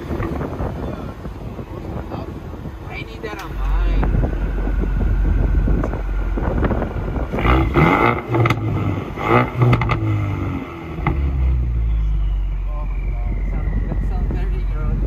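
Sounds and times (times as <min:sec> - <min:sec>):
car engine idling: 0:00.0 - 0:15.0
engine throttle blips: 0:00.0 - 0:15.0.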